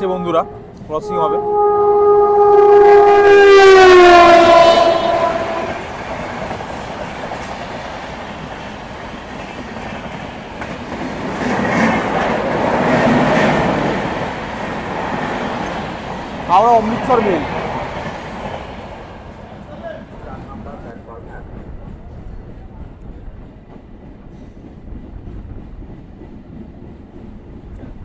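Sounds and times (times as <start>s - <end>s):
train horn long blast: 0.0s - 6.2s
train wheels rumbling and clattering: 2.3s - 28.0s.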